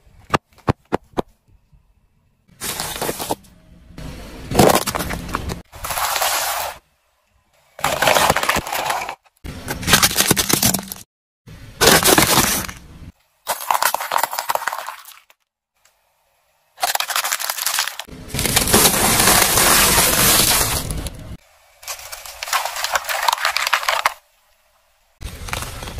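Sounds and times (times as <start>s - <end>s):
plastic-wrapped snacks crunching: 13.5s - 15.3s, 16.8s - 21.1s, 21.8s - 24.2s.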